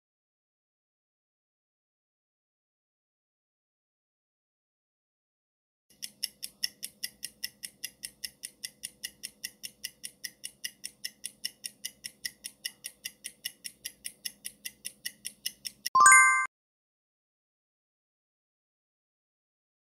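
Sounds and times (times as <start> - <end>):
clock-like ticking: 5.9 - 16.0.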